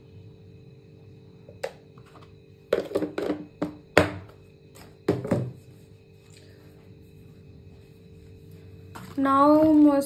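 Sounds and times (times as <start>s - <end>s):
faint steady hum: 0.0s - 10.0s
containers knocking on counter: 2.7s - 4.3s, 5.1s - 5.6s.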